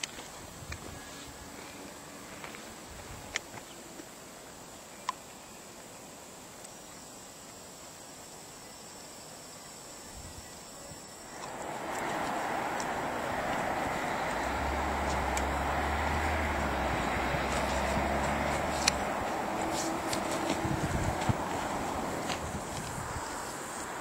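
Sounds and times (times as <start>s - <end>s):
faint outdoor ambience: 0.0s - 24.0s
steady rushing noise: 11.2s - 24.0s.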